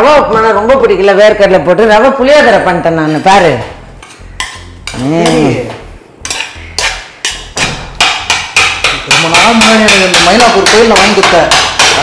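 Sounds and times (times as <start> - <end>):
metal spoon knocking on pan: 6.2 - 12.0.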